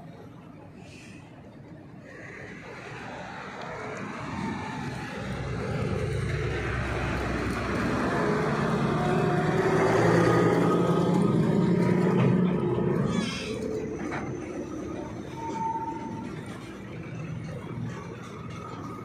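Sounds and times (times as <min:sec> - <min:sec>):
vehicle engine passing: 0:02.6 - 0:15.5.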